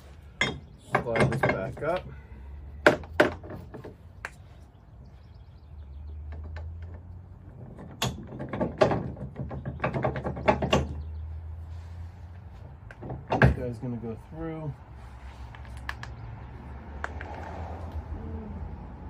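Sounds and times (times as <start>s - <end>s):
metal hitch knocks and clicks: 0.3s - 2.1s, 6.1s - 11.1s, 12.6s - 14.0s.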